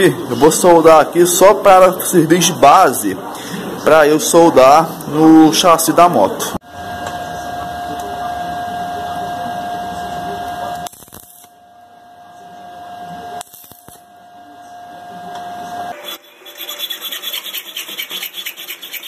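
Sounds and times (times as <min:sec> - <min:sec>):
crackling hissing welding arc: 0:10.7 - 0:11.6, 0:13.4 - 0:14.0.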